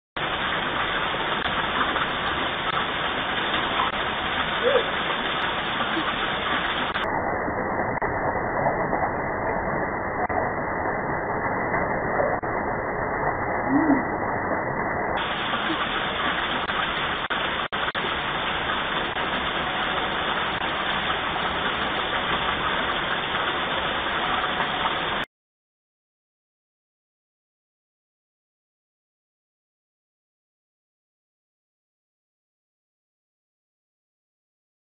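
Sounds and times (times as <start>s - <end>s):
steady rain falling: 0.2s - 25.3s.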